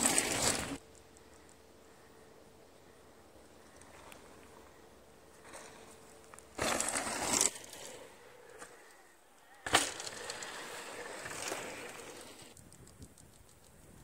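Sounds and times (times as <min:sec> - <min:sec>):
tyres rolling and skidding over dirt: 0:00.0 - 0:00.8, 0:03.8 - 0:08.9, 0:09.6 - 0:12.6
bike tyres on dirt: 0:00.0 - 0:14.0
bike landing knock: 0:09.6 - 0:10.2.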